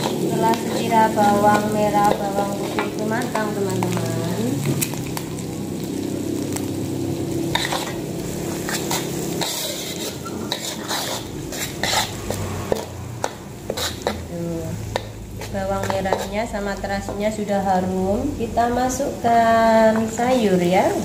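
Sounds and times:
spatula scraping a wok: 0.0 - 4.1, 7.2 - 17.2
food sizzling in oil: 0.0 - 21.0.

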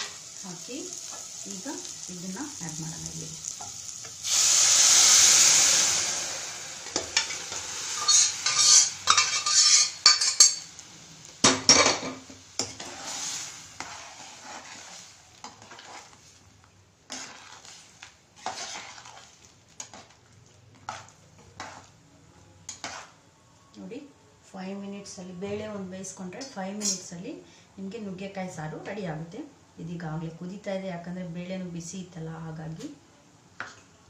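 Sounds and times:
loud sizzle in a pot: 0.0 - 23.4, 24.6 - 27.3
metal ladle scraping pot: 8.0 - 10.6, 17.1 - 20.1.

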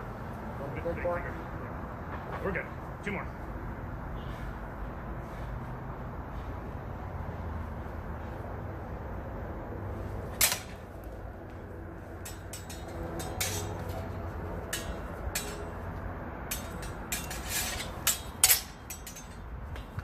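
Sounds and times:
sword blades clacking: 10.3 - 10.9, 12.1 - 20.0.

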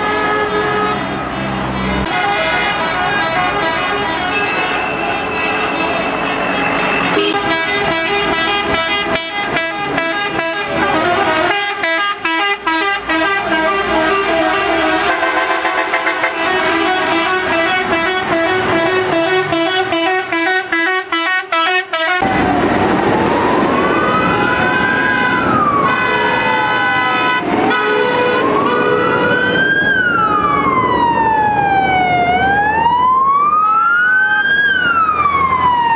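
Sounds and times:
vehicle horns alternating tones: 0.0 - 22.4, 25.1 - 29.4
emergency vehicle siren wailing: 0.0 - 35.9.

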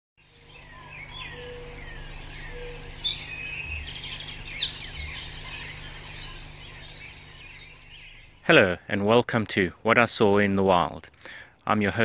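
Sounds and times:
birds chirping: 0.2 - 9.8.

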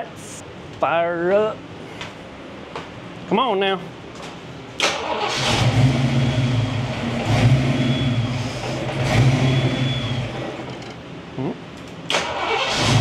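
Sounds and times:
car engine starting and idling: 4.8 - 10.7, 12.1 - 13.0.

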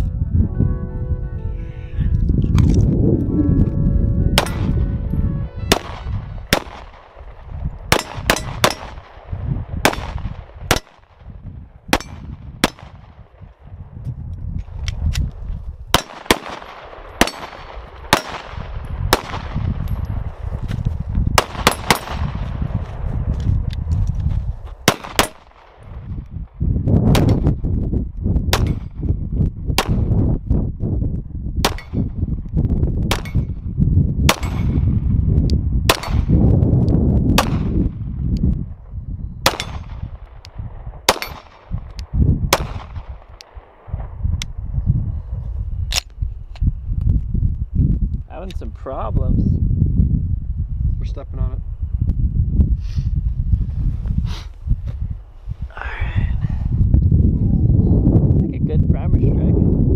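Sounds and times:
pistol shots: 4.4 - 4.8, 5.7 - 7.3, 7.9 - 11.1, 11.9 - 13.2, 15.9 - 19.7, 21.4 - 22.5, 24.8 - 25.8, 34.3 - 34.9, 35.9 - 36.3, 37.4 - 37.8, 39.4 - 41.8, 42.5 - 43.7.

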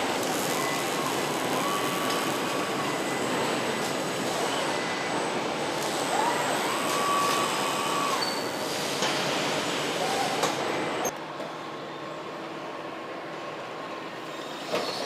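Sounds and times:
welding line machinery noise: 0.0 - 11.2.

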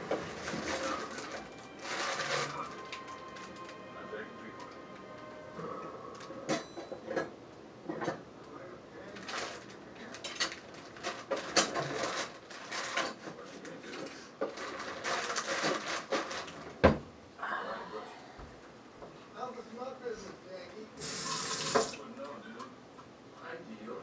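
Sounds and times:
dishes and utensils clinking: 5.6 - 8.2.

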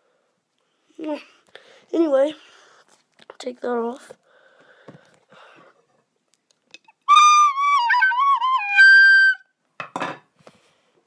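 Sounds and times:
high flute-like whistle: 7.1 - 9.5.

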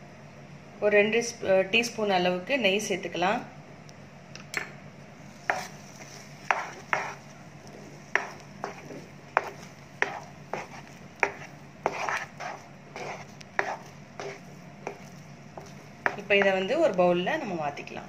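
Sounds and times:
spatula scraping a pan: 5.3 - 7.3, 7.9 - 16.6.

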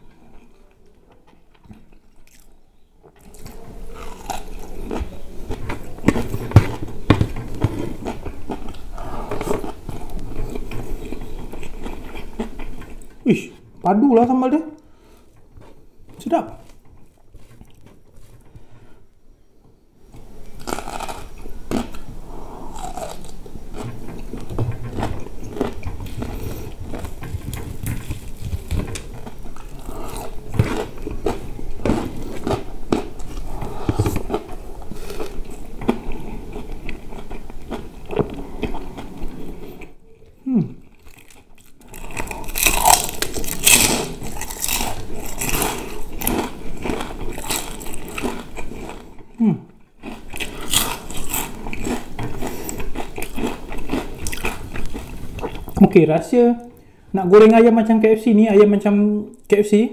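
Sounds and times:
chewing and smacking food: 1.2 - 13.7, 16.6 - 18.6, 20.6 - 40.0, 40.8 - 49.3, 49.9 - 55.8
crunching crispy chicken skin: 41.0 - 49.0, 50.0 - 55.1.

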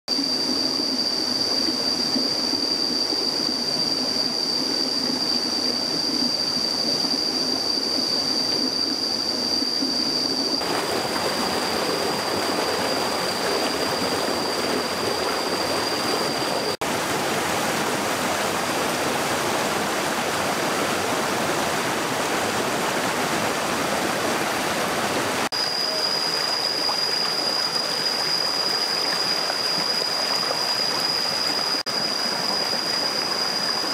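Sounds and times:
stream rushing over stones: 10.6 - 33.9.

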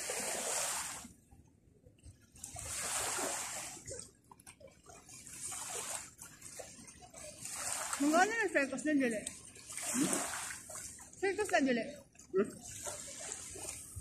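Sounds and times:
small waves washing on beach: 0.0 - 1.2, 2.2 - 14.0.

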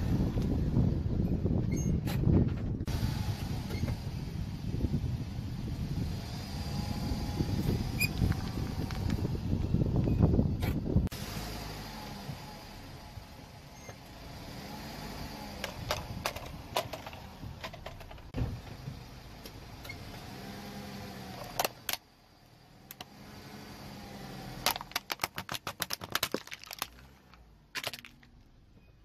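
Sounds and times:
plastic toy crunching apart: 24.6 - 28.3
plastic toy cracking and snapping: 24.7 - 27.1.

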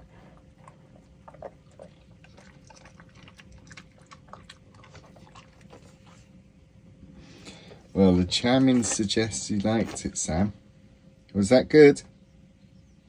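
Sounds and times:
dog chewing and smacking: 0.0 - 6.4.

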